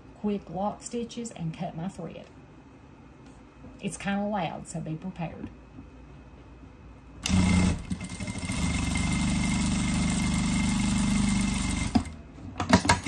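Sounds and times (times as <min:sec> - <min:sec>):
sewing machine stopping click: 0:07.2 - 0:12.1
sewing machine running: 0:07.2 - 0:12.2.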